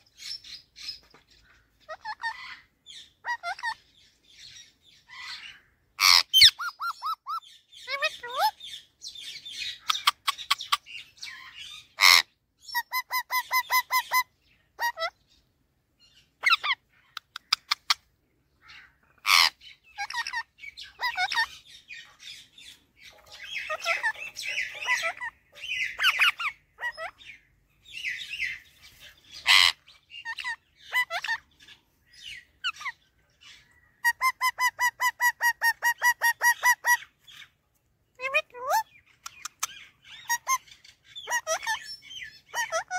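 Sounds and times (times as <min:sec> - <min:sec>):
parakeet chattering and chirping: 0:00.1 - 0:15.4, 0:16.0 - 0:42.9
parakeet shrill screeches: 0:23.4 - 0:27.2, 0:29.4 - 0:31.4.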